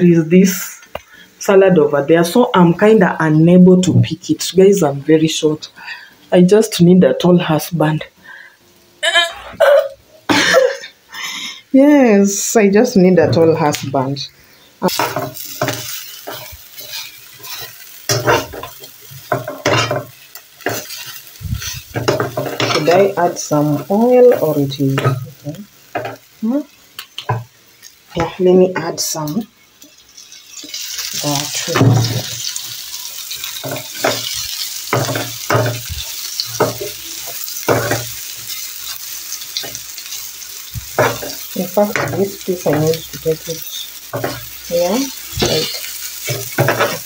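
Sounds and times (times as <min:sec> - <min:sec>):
food sizzling in hot oil: 0:00.0 - 0:47.0
metal spatula scraping a pan: 0:14.9 - 0:23.2, 0:44.1 - 0:47.0.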